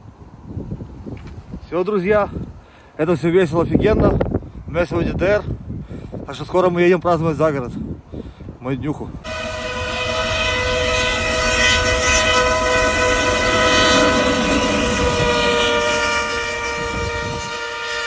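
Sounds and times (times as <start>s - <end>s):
long held chord: 9.3s - 18.0s.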